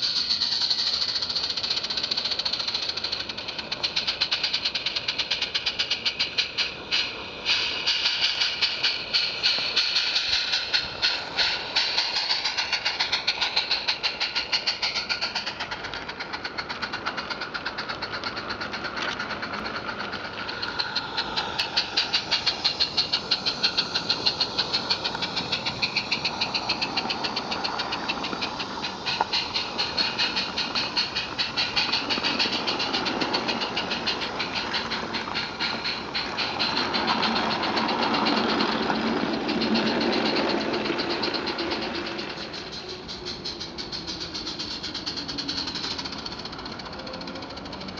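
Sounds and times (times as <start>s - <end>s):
steam locomotive chuffing: 0.0s - 47.9s
wagons rumbling and wheels clattering: 0.0s - 47.9s.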